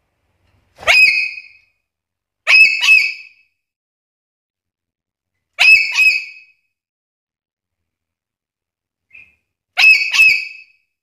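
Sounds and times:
parrot whistled calls: 0.8s - 1.6s, 2.5s - 3.4s, 5.6s - 6.5s, 9.1s - 10.8s.

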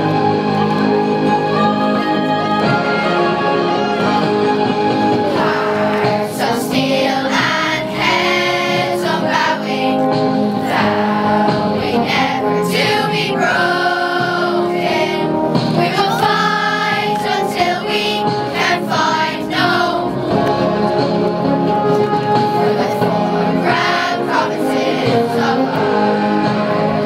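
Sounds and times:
children's choir singing: 5.2s - 21.1s, 22.3s - 27.0s.

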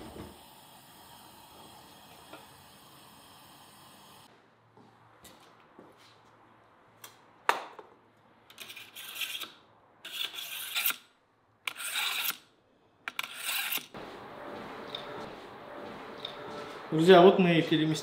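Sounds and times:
knife scraping through sharpener: 8.5s - 11.1s, 11.7s - 12.5s, 13.1s - 14.0s.

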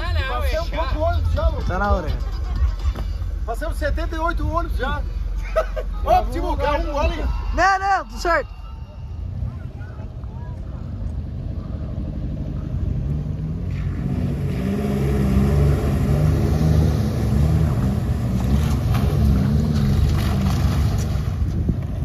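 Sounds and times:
off-road engine revving: 9.2s - 22.0s
water splashing: 13.6s - 21.5s.

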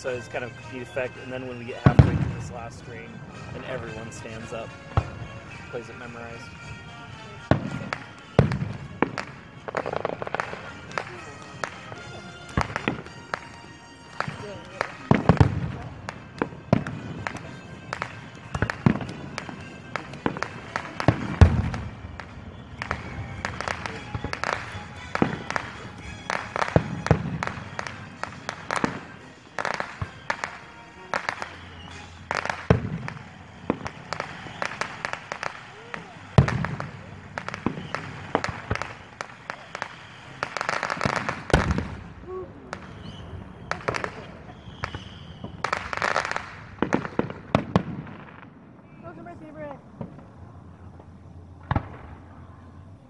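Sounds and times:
band music with brass: 0.0s - 42.1s, 45.6s - 47.6s
fireworks cracking and popping: 0.0s - 52.4s
fireworks boom: 0.9s - 6.5s, 14.2s - 39.0s, 40.4s - 52.4s.

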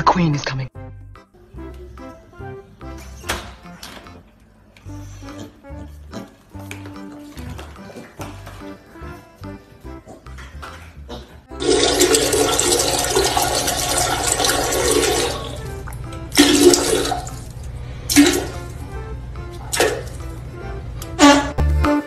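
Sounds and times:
toilet flushing: 11.6s - 18.8s, 19.6s - 20.4s.

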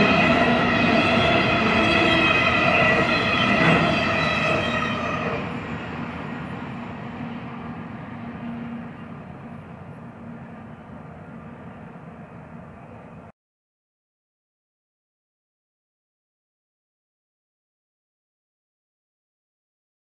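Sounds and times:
high ringing squeal: 0.0s - 5.6s
freight train rolling on rails: 0.0s - 13.3s.

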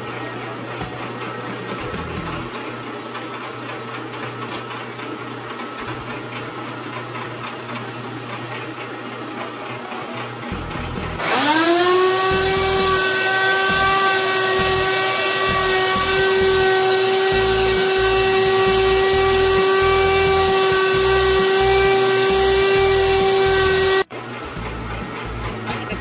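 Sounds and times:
electric grinder whining: 10.5s - 24.1s.

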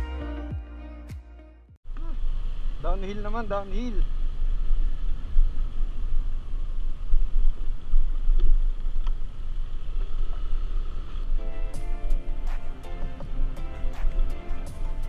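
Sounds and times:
background music: 0.0s - 1.8s, 11.4s - 15.0s.

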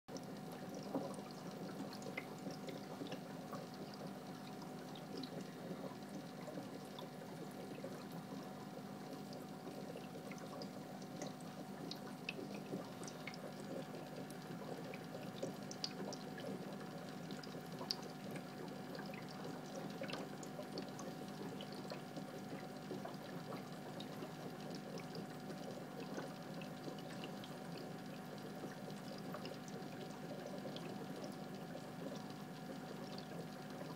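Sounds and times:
aquarium filter bubbling: 0.1s - 33.9s
faint steady hum: 0.1s - 33.9s.

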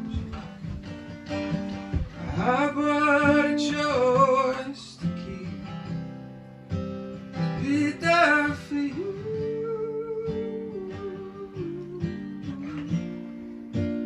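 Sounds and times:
man singing: 0.0s - 0.6s, 2.2s - 6.0s, 7.4s - 13.4s
acoustic guitar strumming: 0.0s - 14.0s.

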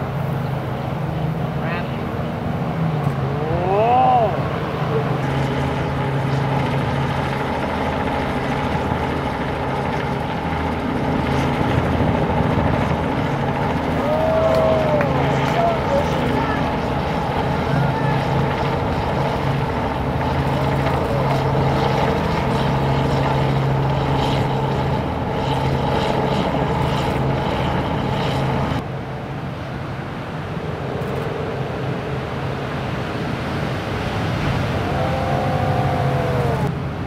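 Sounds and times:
motor drone with pitched hum: 0.0s - 28.8s
gliding engine tone: 0.0s - 28.9s, 30.4s - 37.0s
wind and surf noise: 0.0s - 37.0s.

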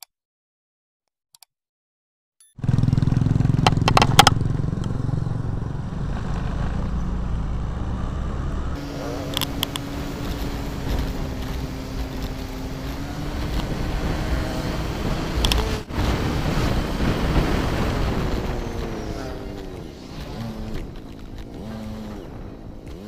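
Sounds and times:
motorcycle engine running: 2.6s - 23.0s
wind rumble on microphone: 3.6s - 23.0s
sharp clicks: 9.0s - 13.9s, 15.3s - 15.9s.

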